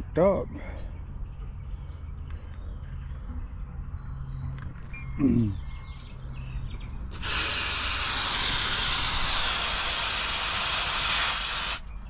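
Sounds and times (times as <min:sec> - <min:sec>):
gas spraying with loud hiss: 0:07.1 - 0:11.9.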